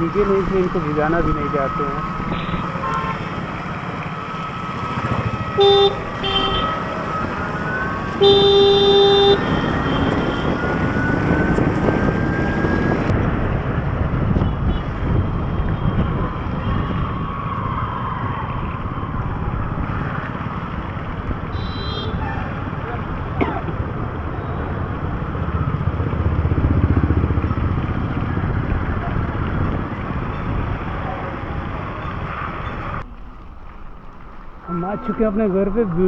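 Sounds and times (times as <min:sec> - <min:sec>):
tyres on wet road: 0:00.0 - 0:25.1
vehicle horn beeping: 0:02.3 - 0:03.3, 0:05.6 - 0:06.8, 0:08.2 - 0:10.6, 0:21.5 - 0:22.2.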